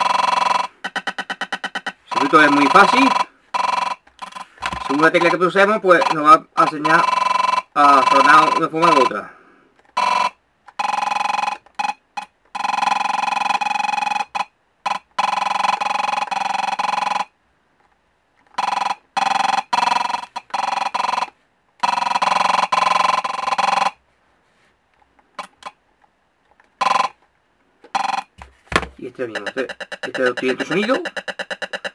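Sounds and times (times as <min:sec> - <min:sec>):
harsh mid-pitched buzzing bursts: 0:00.0 - 0:09.0.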